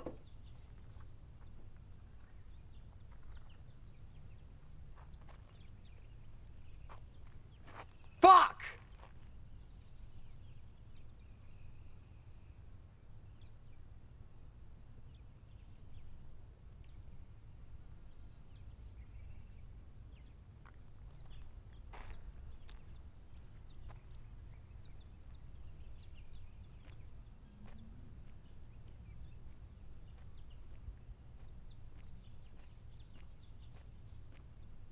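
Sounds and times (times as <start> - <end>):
low rumble of wind: 0.0 - 8.2, 8.8 - 34.9
faint bird chirps: 21.1 - 34.4.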